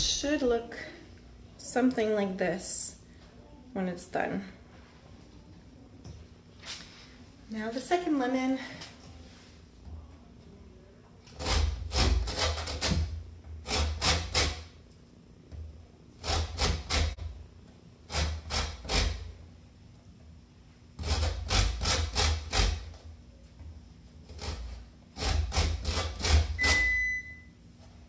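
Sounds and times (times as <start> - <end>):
lemon scraping on grater: 16.2 - 17.2, 21.0 - 22.8, 24.3 - 26.6.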